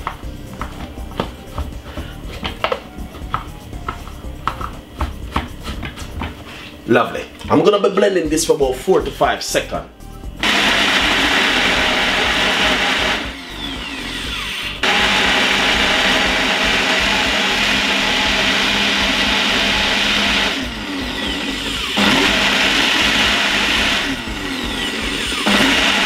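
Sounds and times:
blender grinding: 10.4s - 26.0s.

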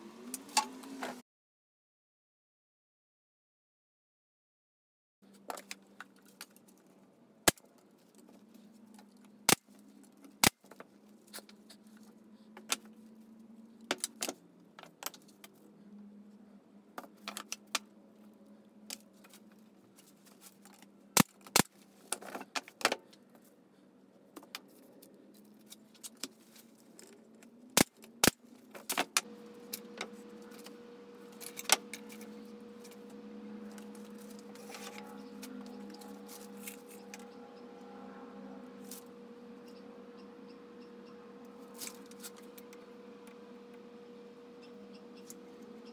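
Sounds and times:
steady low hum: 23.1s - 45.9s
higher hum: 29.2s - 45.9s.

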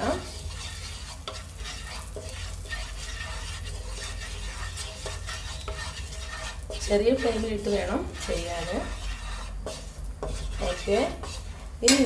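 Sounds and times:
spatula scraping pan: 0.0s - 12.0s
spices sizzling in oil: 0.0s - 12.0s
spatula knocking against pan: 9.7s - 12.0s.

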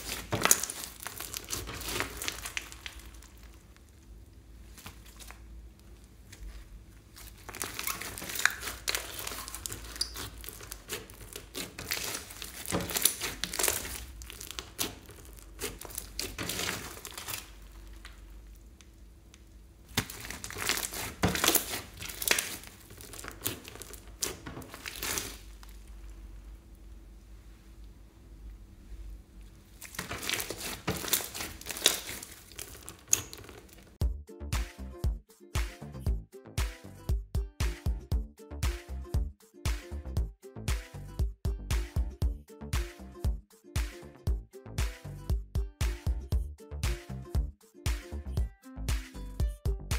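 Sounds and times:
slime crackling and squishing: 0.0s - 27.0s, 28.8s - 34.0s.

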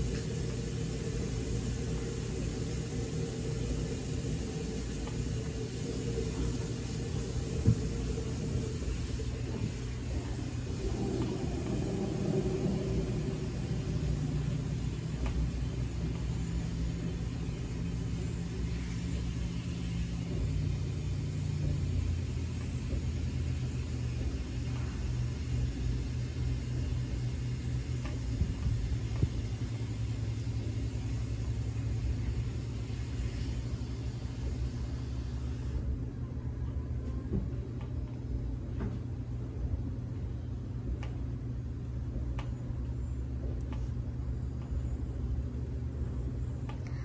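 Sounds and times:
light hiss: 0.0s - 35.9s
low motor hum: 0.0s - 47.0s.

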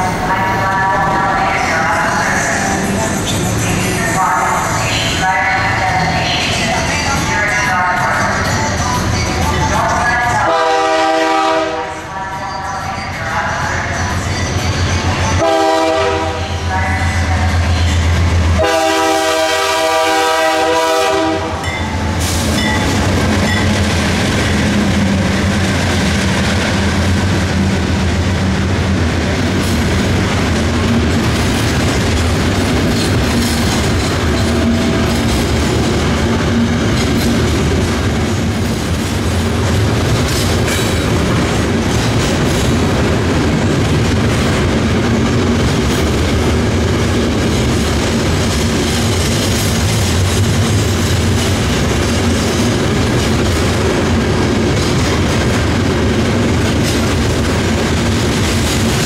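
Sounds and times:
locomotive horn blasts: 10.4s - 12.0s, 15.4s - 17.2s, 18.6s - 21.7s
train wheels clacking over rail joints: 29.4s - 59.0s.

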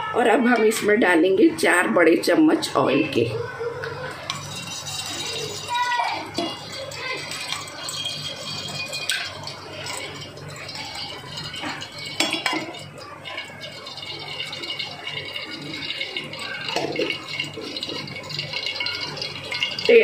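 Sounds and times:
ladle clinking against pan: 4.2s - 19.9s
oil pouring into pan: 4.3s - 20.0s.

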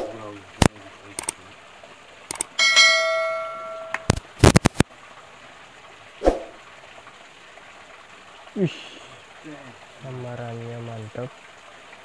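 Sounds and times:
sharp clicks: 0.6s - 1.4s, 2.3s - 2.5s
bell-like metallic ring: 2.6s - 4.1s.

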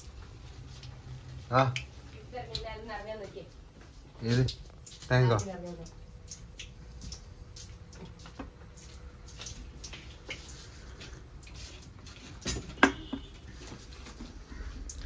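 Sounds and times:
light clicks and taps: 1.7s - 13.3s.

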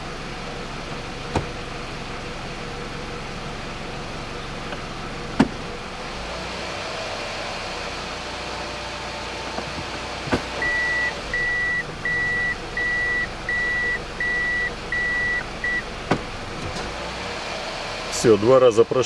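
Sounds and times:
car engine idling: 0.0s - 19.0s
reverse warning buzzer beeping: 10.6s - 15.9s.

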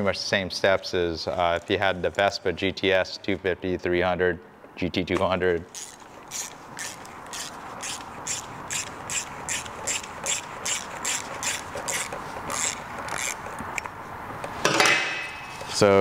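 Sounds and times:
ratchet wrench clicking: 5.7s - 13.9s.

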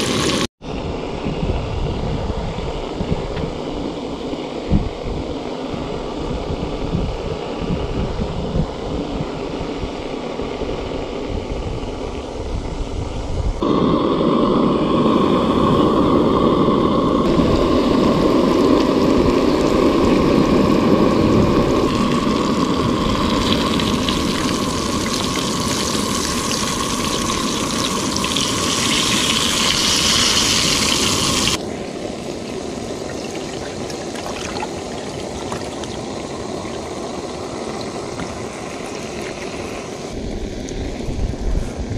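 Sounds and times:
fish sizzling in hot oil: 0.0s - 0.5s, 13.6s - 40.6s
water pouring into cup: 17.2s - 31.7s, 32.4s - 40.0s.

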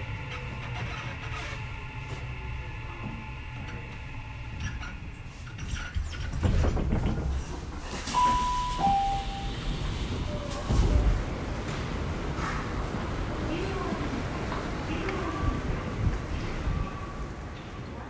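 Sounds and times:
train low rumble: 0.0s - 18.0s
two-note falling chime: 8.2s - 9.6s.

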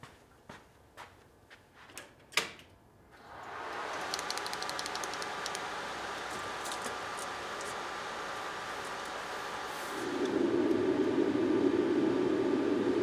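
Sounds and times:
soft footsteps: 0.0s - 1.9s
laser cutter fan whirring: 3.2s - 13.0s.

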